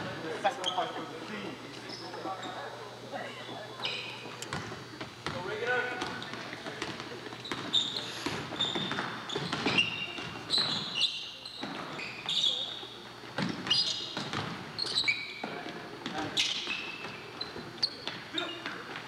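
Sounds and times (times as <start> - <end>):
crowd chatter: 0.0 - 14.4
sneaker squeaks on floor: 0.6 - 1.1, 1.8 - 2.7, 3.8 - 5.4, 6.0 - 19.0
basketball bouncing on court: 4.5 - 7.7, 8.3 - 10.9, 13.3 - 17.2.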